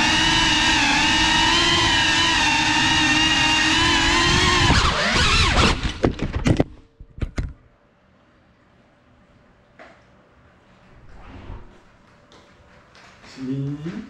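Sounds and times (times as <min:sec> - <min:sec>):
drone motors whining: 0:00.0 - 0:06.2.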